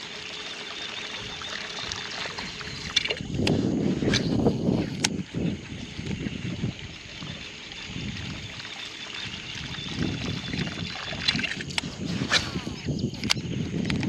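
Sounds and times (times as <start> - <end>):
water sloshing and trickling: 0.0 - 14.0
sharp clicks: 13.1 - 14.0.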